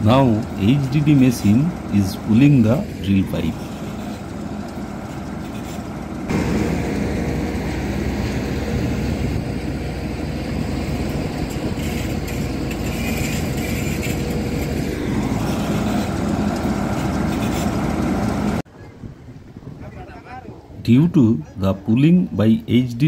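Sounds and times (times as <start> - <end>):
drilling rig engine under load: 0.0 - 18.6.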